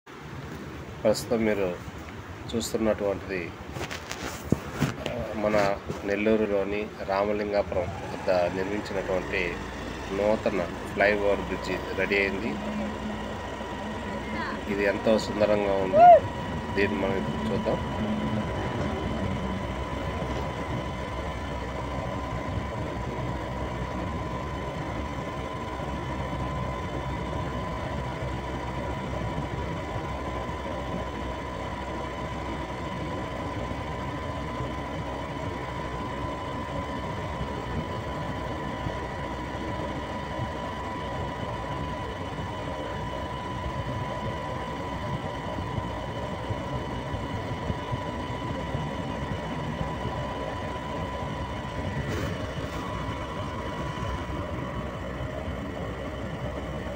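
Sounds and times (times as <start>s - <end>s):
steady high whine: 0.1s - 56.9s
motorbike engine and road rumble: 0.2s - 56.9s.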